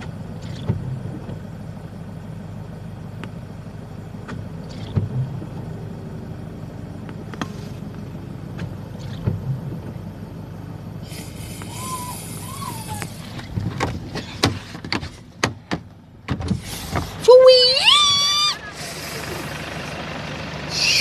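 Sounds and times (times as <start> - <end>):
car engine idling: 0.0 - 21.0.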